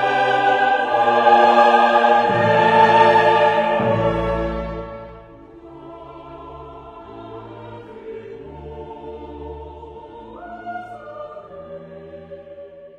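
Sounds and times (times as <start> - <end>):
choir singing held chords: 0.0 - 12.9.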